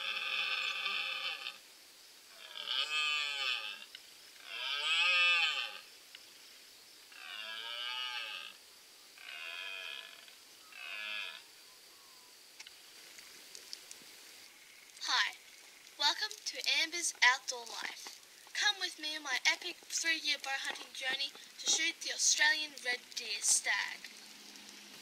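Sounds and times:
deer stag roaring: 0.0 - 1.6, 2.4 - 5.9, 7.1 - 8.6, 9.2 - 11.5.

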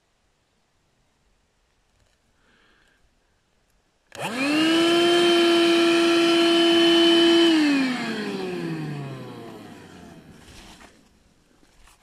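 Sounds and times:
vacuum cleaner motor whine: 4.1 - 11.0.

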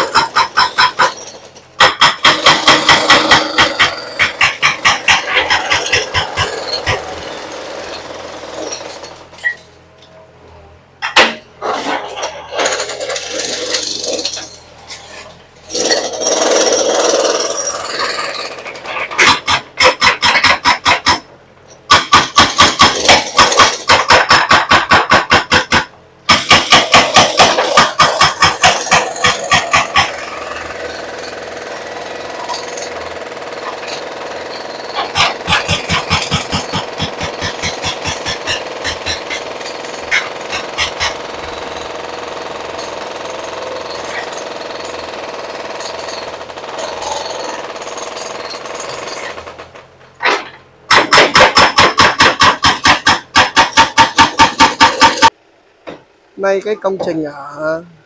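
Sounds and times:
hydraulic breaker hammering concrete: 0.0 - 9.6, 11.0 - 55.4.

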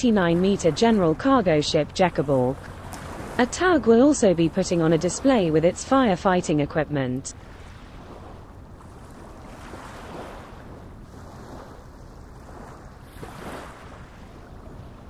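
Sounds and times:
waves: 0.0 - 15.0
wind: 0.0 - 15.0.

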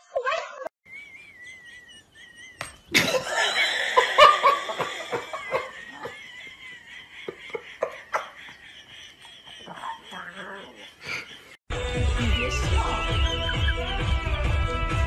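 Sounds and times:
person laughing hard: 1.3 - 11.6.

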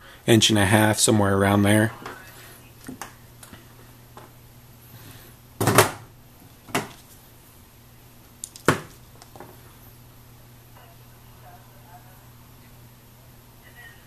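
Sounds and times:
handling knocks and clicks on desk: 6.7 - 7.0, 8.4 - 9.6.

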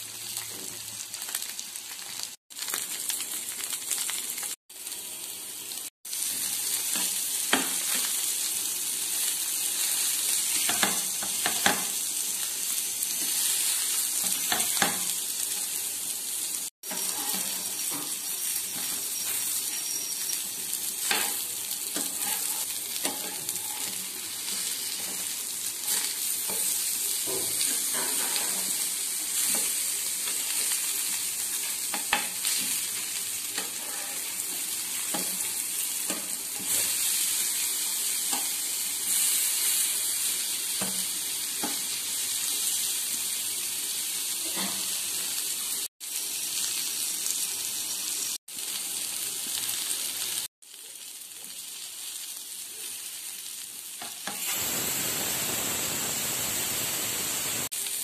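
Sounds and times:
fish sizzling in oil: 0.0 - 58.0
spatula tapping and scraping pan: 10.6 - 11.9, 14.2 - 15.1, 21.0 - 24.0, 35.1 - 36.8.

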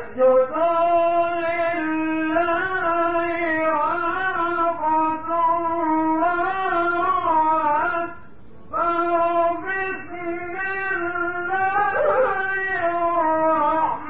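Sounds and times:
man reciting melodically: 0.0 - 14.0.

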